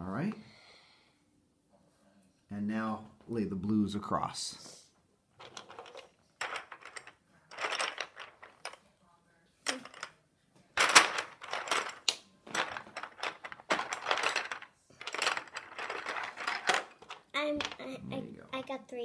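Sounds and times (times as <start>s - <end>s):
plastic pieces clattering: 5.4s - 8.8s, 9.7s - 10.1s, 10.8s - 17.9s.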